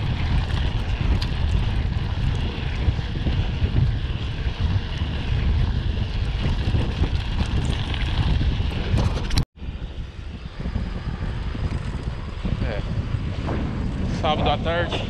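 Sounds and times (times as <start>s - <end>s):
bike clicks and rattles: 0.0s - 9.4s, 11.5s - 12.8s
tyres on dirt trail: 0.0s - 15.0s
wind buffeting microphone: 0.0s - 15.0s.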